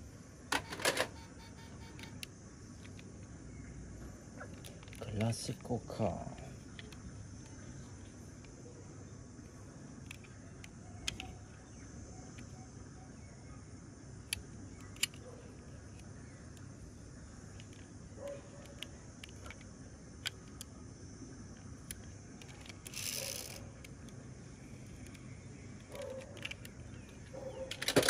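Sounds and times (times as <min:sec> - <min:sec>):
outdoor background hiss: 0:00.0 - 0:28.0.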